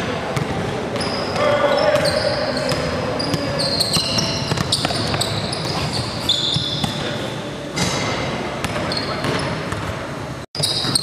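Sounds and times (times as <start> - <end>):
sneakers squeaking on gym floor: 0.4 - 10.0, 10.6 - 11.0
basketball dribbling: 2.7 - 7.0.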